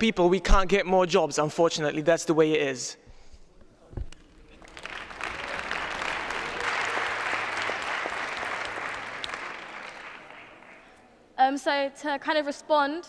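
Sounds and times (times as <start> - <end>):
audience applause: 4.5 - 11.1.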